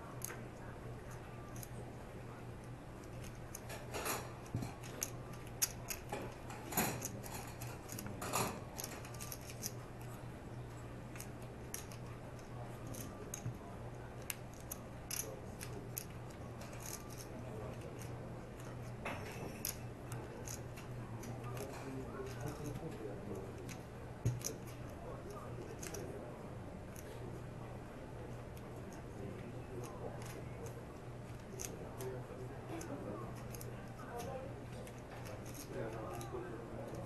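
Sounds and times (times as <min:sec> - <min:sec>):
steady low hum: 0:00.0 - 0:37.0
poker chips clicking: 0:08.7 - 0:09.8, 0:11.2 - 0:13.5, 0:14.2 - 0:19.0.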